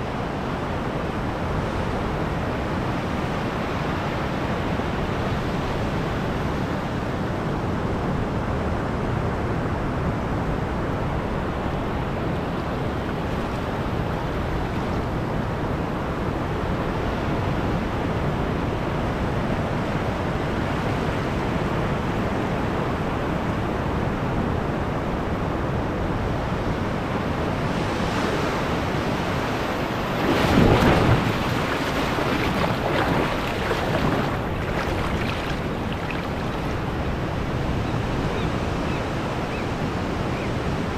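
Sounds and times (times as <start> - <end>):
ocean surf breaking: 28.3 - 37.9
wave splashing around rock: 29.6 - 37.6.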